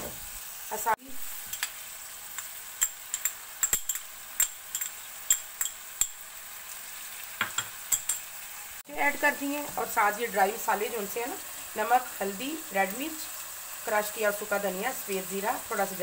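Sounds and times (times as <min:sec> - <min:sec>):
chicken sizzling in oil: 0:00.0 - 0:16.0
metal spoon clinking on pot: 0:02.8 - 0:06.2, 0:07.4 - 0:08.3.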